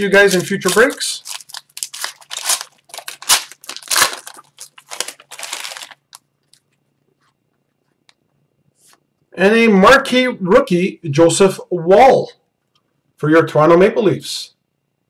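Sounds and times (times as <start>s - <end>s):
foil wrapper tearing and crinkling: 0.0s - 6.6s.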